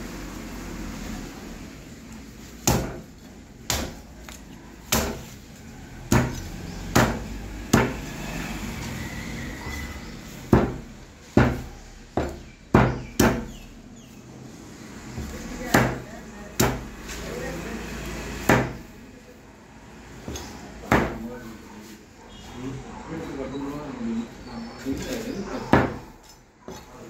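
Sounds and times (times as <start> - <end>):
meat cleaver chopping on wood: 2.6 - 4.1, 4.8 - 5.4, 6.0 - 8.2, 10.5 - 13.6, 15.6 - 17.0, 18.4 - 18.8, 20.2 - 21.3.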